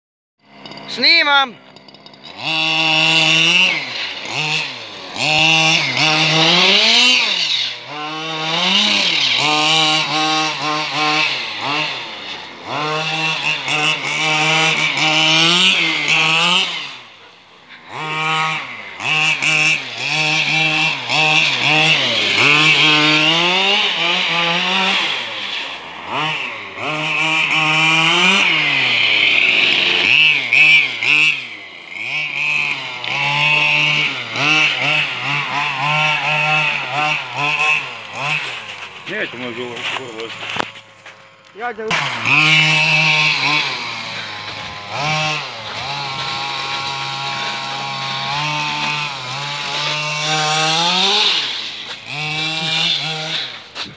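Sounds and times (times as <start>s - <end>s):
small petrol engine revving: 0.4s - 53.9s.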